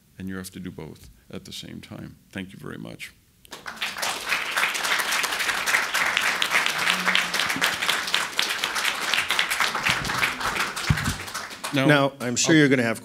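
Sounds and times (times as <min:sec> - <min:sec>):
audience applauding: 0:03.5 - 0:12.5.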